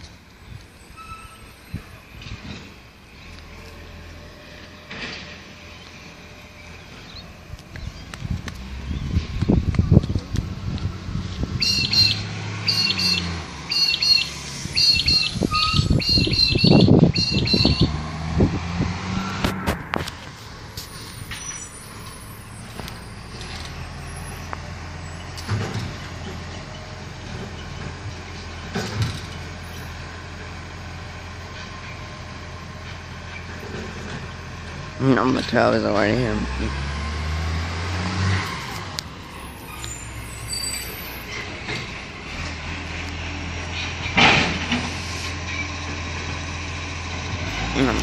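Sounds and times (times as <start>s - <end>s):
bird chirping: 11.6s - 18.0s.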